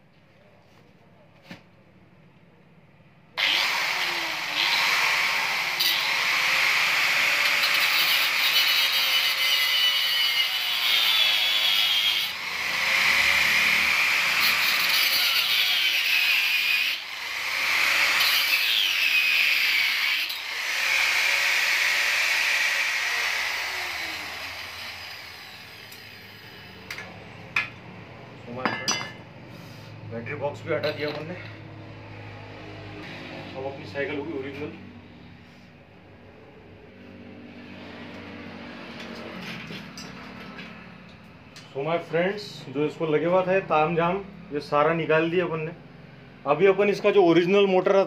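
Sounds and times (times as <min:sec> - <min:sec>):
angle grinder cutting metal: 0:03.4 - 0:27.7.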